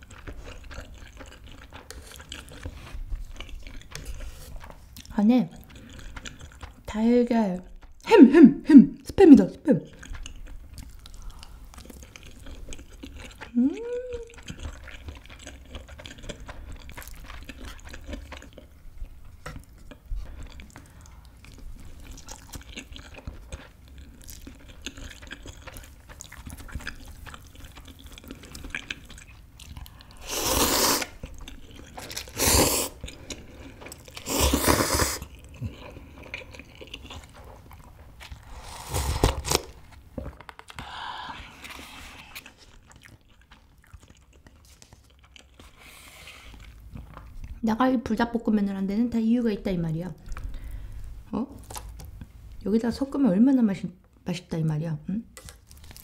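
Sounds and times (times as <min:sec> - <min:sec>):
person chewing food: 0:00.0 - 0:08.1, 0:09.8 - 0:47.6, 0:50.2 - 0:52.6, 0:55.4 - 0:56.0
person humming: 0:13.5 - 0:14.4
loud slurping sips: 0:30.2 - 0:31.2, 0:32.3 - 0:33.0, 0:34.2 - 0:35.3, 0:38.4 - 0:39.8.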